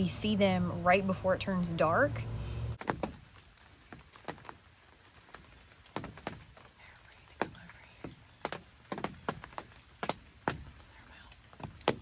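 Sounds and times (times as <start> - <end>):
light sharp taps and clicks: 5.3 - 12.0.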